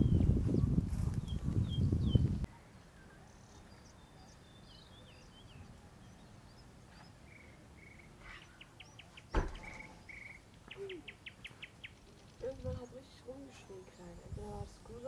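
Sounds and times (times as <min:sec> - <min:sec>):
small birds chirping and trilling: 0:00.0 - 0:15.0
sharp knock: 0:09.3 - 0:09.7.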